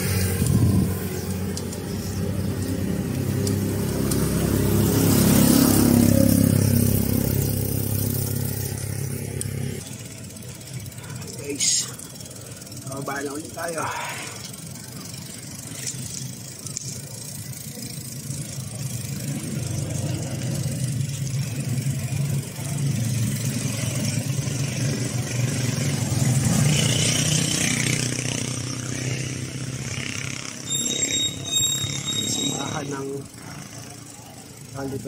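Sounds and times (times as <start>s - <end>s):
passing vehicle engine hum: 0.0s - 35.0s
road and wind noise: 0.0s - 35.0s
high-pitched squeal: 30.6s - 33.2s.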